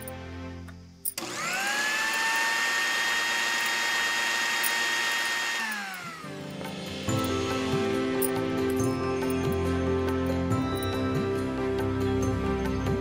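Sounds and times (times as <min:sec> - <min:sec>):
electric blender running: 0:01.2 - 0:07.7.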